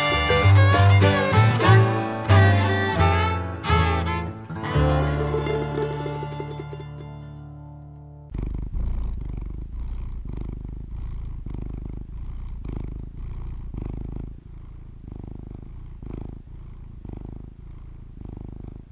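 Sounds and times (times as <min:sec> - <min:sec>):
cat purring: 0:08.3 - 0:18.9.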